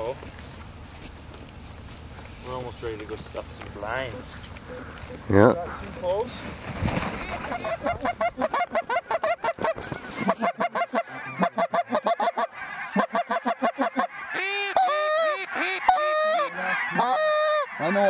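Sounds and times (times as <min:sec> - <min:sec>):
geese honking in flight: 0:07.2 - 0:18.0.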